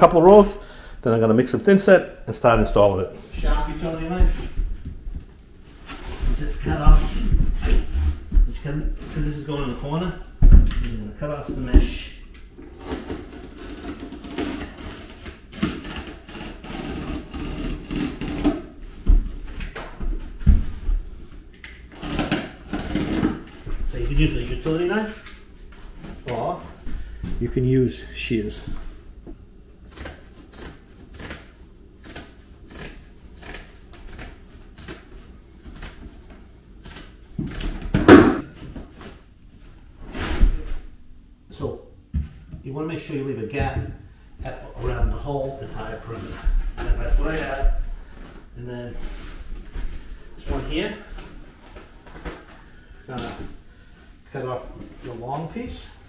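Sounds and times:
mat scraping on floor: 0:05.7 - 0:09.8
shears snipping plastic: 0:29.9 - 0:36.1.

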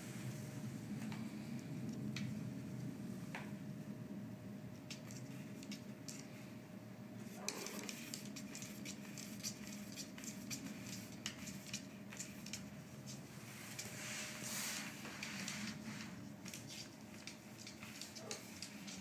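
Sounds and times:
steady low hum: 0:00.0 - 0:19.0
paws clicking on wooden floor: 0:07.4 - 0:14.0, 0:15.1 - 0:19.0
soft rustling: 0:12.1 - 0:19.0.

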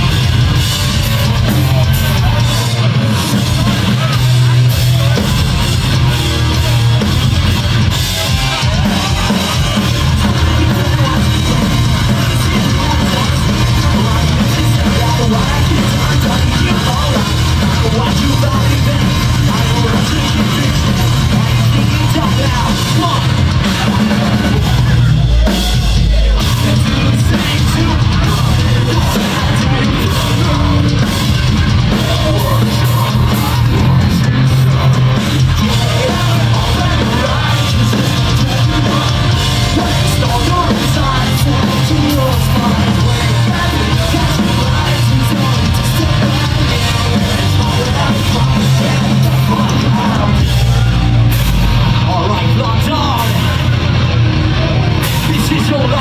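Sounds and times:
person singing and yelling: 0:00.0 - 0:56.0
rock band playing: 0:00.0 - 0:56.0.

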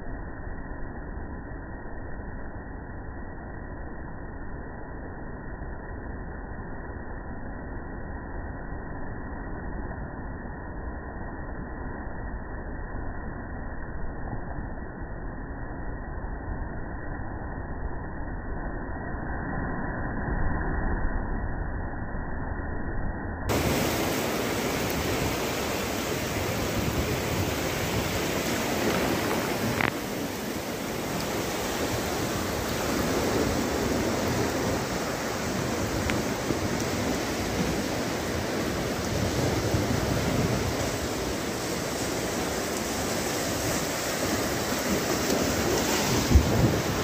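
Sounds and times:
sea waves breaking on shore: 0:23.5 - 0:47.0
strong wind buffeting microphone: 0:23.5 - 0:47.0.

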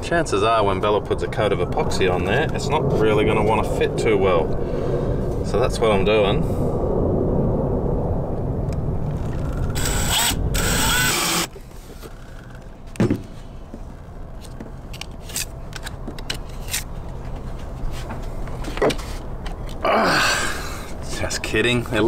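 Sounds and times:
cordless drill whine: 0:09.3 - 0:12.4.

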